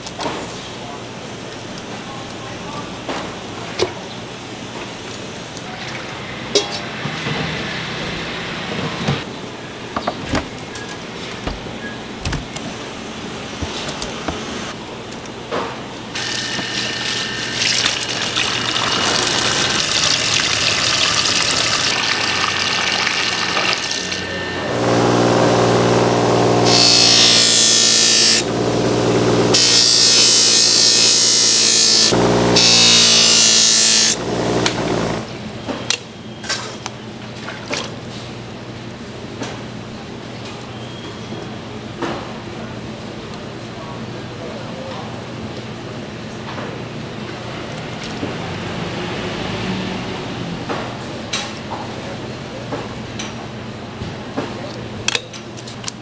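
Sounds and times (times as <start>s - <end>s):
water running and splashing: 17.7s - 24.0s.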